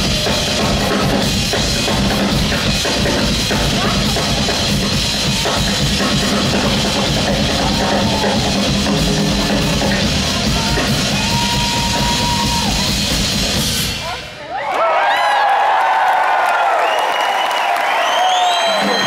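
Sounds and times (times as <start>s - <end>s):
live rock band playing: 0.0s - 14.0s
drum kits with cymbals: 0.0s - 14.4s.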